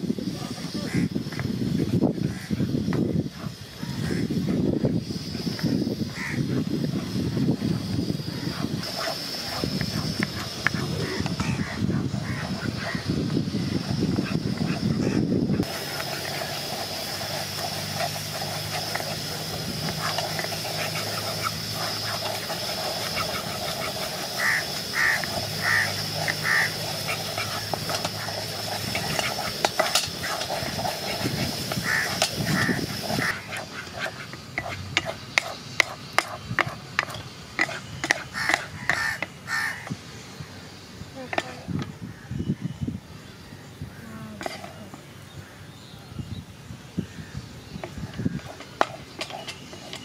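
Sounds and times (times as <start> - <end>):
steady high hiss: 0.0 - 50.0
animal calls: 5.4 - 34.8
wooden spoon scraping jam in pan: 15.6 - 39.1, 47.8 - 50.0.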